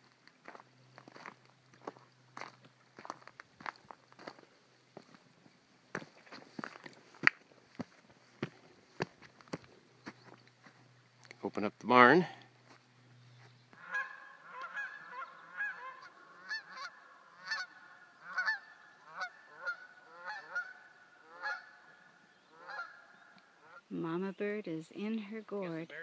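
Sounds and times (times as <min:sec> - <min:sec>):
geese honking: 0:13.7 - 0:23.9.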